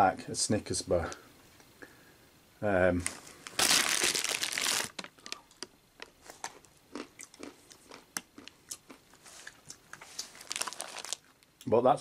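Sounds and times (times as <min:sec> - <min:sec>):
plastic snack bag crinkling: 0:03.0 - 0:11.5
small clicks and crackles: 0:04.5 - 0:06.7.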